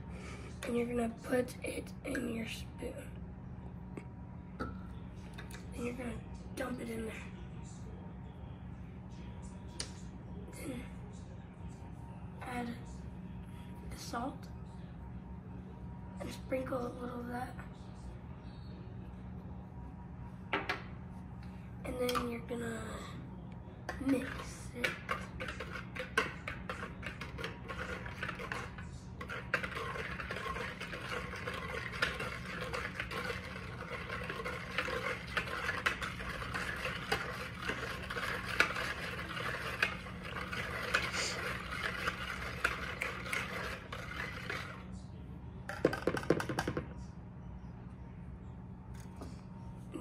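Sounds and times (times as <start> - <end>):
wire whisk scraping plastic bowl: 24.0 - 44.8.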